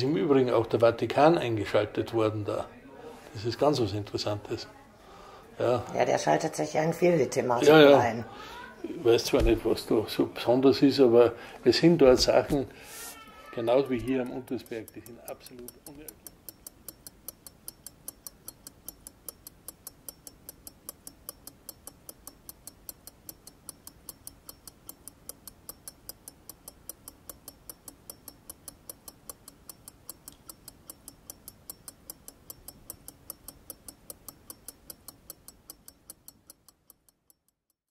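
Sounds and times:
pocket watch ticking: 0:13.2 - 0:37.9.

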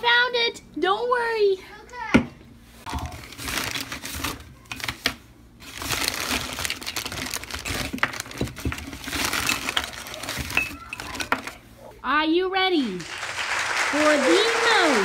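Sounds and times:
crinkling and rustling handling: 0:02.7 - 0:11.9.

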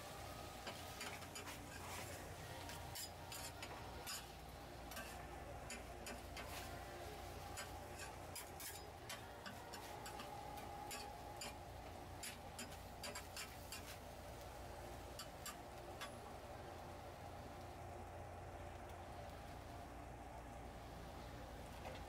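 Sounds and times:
steady low hum: 0:00.0 - 0:22.0
metal spatulas scraping griddle: 0:00.5 - 0:14.0, 0:15.0 - 0:16.1.

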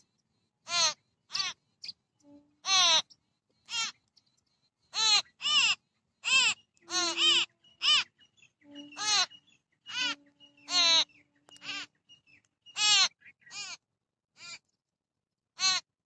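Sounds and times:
birds making harsh nasal calls: 0:00.6 - 0:01.6, 0:02.2 - 0:04.0, 0:04.9 - 0:12.0, 0:12.7 - 0:13.8, 0:14.4 - 0:14.6, 0:15.6 - 0:15.9.

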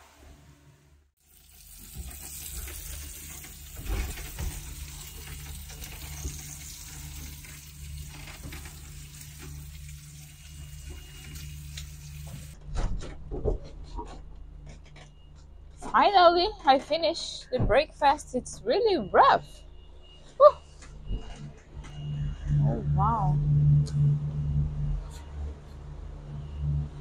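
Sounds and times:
tap water running into sink: 0:01.2 - 0:12.5
boat engine hum: 0:21.6 - 0:27.0.

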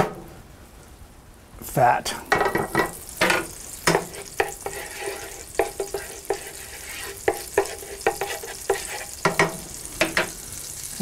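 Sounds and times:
wooden spoon knocking a pan: 0:02.3 - 0:04.8, 0:05.5 - 0:06.5, 0:07.2 - 0:10.4
butter sizzling in a skillet: 0:02.3 - 0:11.0.

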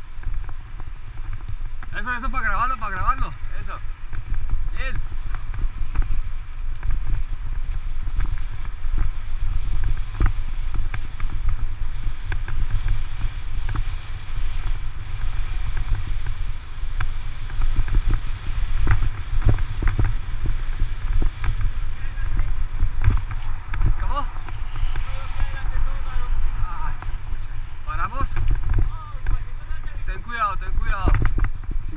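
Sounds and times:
road vibration rumble: 0:00.0 - 0:31.9
wind buffeting microphone: 0:00.0 - 0:31.9
bike knocks and rattles: 0:04.0 - 0:25.0.

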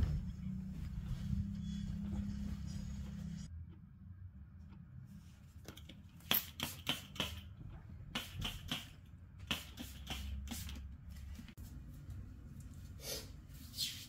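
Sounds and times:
steady low hum: 0:00.0 - 0:06.3.

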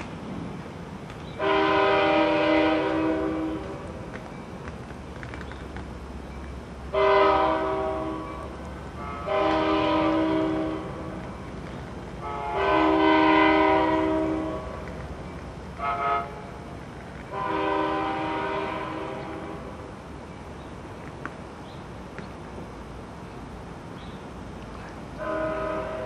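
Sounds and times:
train air horn blasts: 0:01.4 - 0:03.8, 0:06.9 - 0:11.2, 0:12.2 - 0:14.8, 0:15.8 - 0:16.7, 0:17.3 - 0:19.8, 0:25.2 - 0:26.0.

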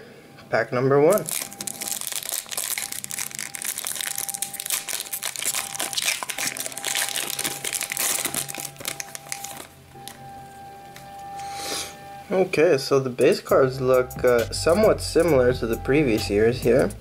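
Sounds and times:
foil wrapper crinkling and tearing: 0:01.1 - 0:10.2.

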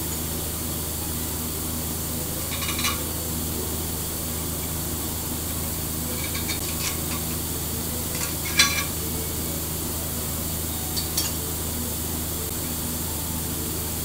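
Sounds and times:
steady low hum: 0:00.0 - 0:14.0
metal parts clinking: 0:02.5 - 0:03.1, 0:06.1 - 0:07.4, 0:08.1 - 0:09.0.

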